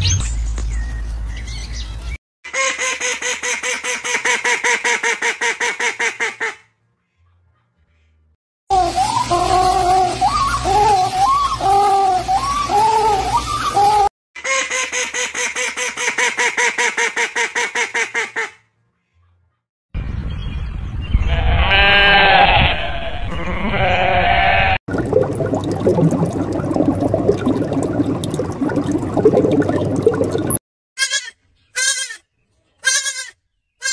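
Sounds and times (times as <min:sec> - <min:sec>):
fast pulsing animal call: 0:08.7 - 0:14.1
goat bleating: 0:21.3 - 0:24.8, 0:31.0 - 0:33.9.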